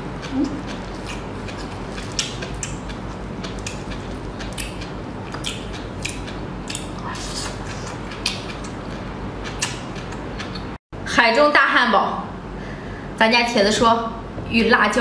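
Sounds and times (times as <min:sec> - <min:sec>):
food peeling and handling: 0:00.0 - 0:10.8
chewing mouth clicks and smacks: 0:00.2 - 0:10.7.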